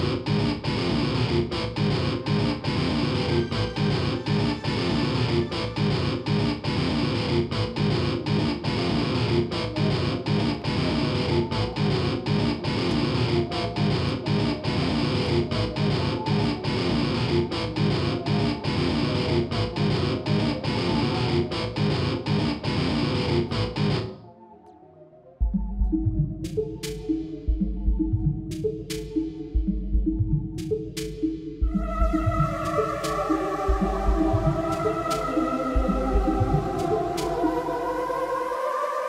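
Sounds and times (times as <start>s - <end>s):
strummed electric guitar music: 0.0s - 24.2s.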